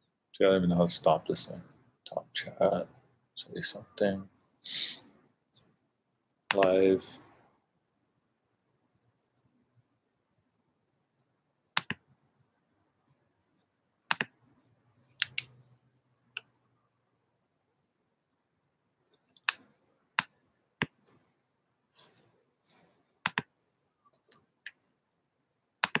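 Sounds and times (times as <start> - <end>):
soft rustle: 21.0 - 23.2.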